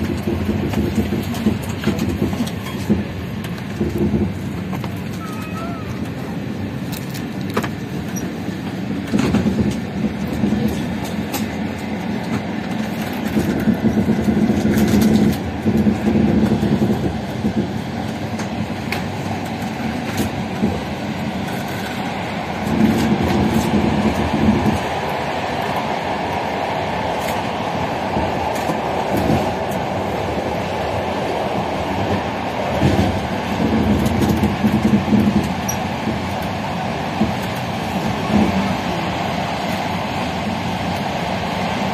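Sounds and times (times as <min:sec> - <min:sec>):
clicks over train track: 0:00.0 - 0:30.9, 0:31.5 - 0:38.8
train wheels rumbling on rails: 0:00.0 - 0:41.9.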